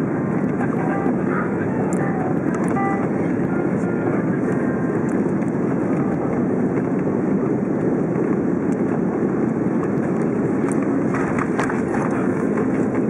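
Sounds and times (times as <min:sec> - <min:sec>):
airflow and jet engines roaring: 0:00.0 - 0:13.0.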